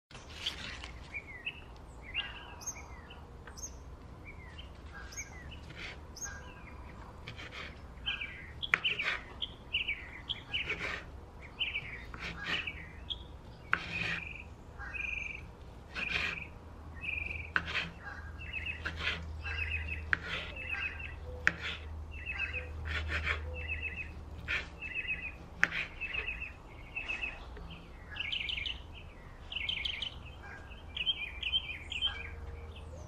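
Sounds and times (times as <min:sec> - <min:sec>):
small birds chirping: 0:00.1 - 0:33.0
knife cutting onto wooden board: 0:21.4 - 0:21.9, 0:25.6 - 0:26.3.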